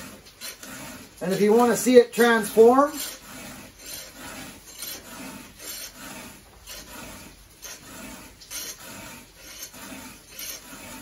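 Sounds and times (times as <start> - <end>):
file rasping on saw chain: 0.0 - 11.0.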